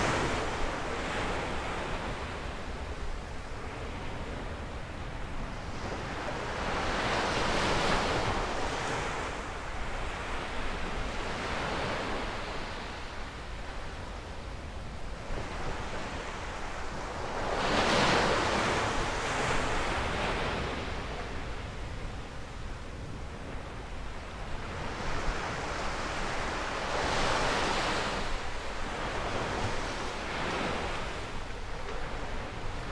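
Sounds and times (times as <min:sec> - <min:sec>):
surf breaking on beach: 0:00.0 - 0:02.6
wind rumbling on microphone: 0:00.0 - 0:32.9.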